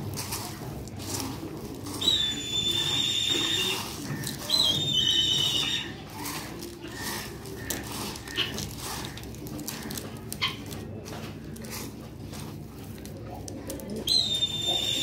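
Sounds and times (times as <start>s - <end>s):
seed stirred in metal bowl: 0.0s - 15.0s
wavering high-pitched whistles: 2.0s - 3.8s, 4.5s - 6.0s, 14.1s - 15.0s.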